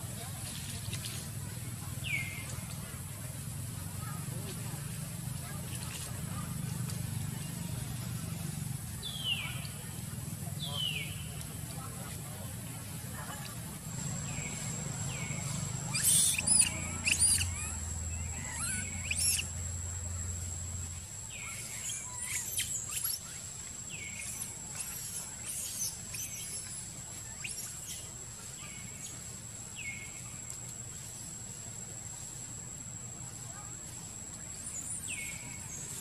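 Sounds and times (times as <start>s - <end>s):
monkey high-pitched squeals: 15.9s - 19.5s, 21.8s - 23.2s.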